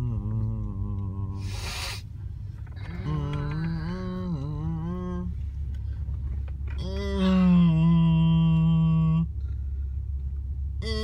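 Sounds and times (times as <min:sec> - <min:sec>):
person humming: 0:00.0 - 0:01.6, 0:02.9 - 0:05.3, 0:06.8 - 0:09.3
car cabin rumble: 0:00.0 - 0:11.0.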